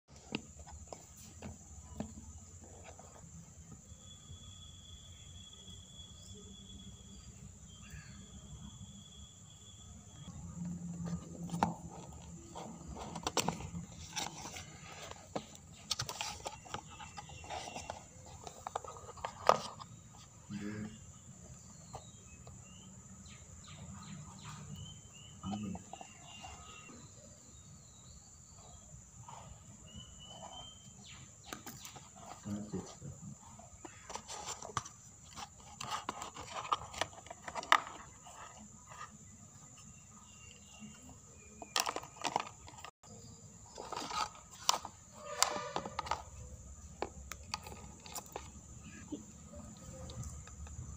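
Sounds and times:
distant bird chirps: 1.7s - 11.2s, 12.4s - 34.6s
cardboard box scraping and rustling: 11.0s - 20.0s.

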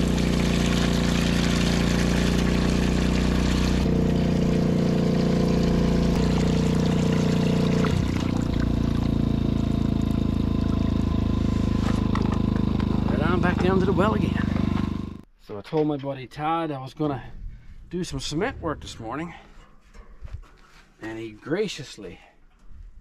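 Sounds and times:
water from hose filling bucket: 0.0s - 15.0s
low motor hum: 0.0s - 15.3s.

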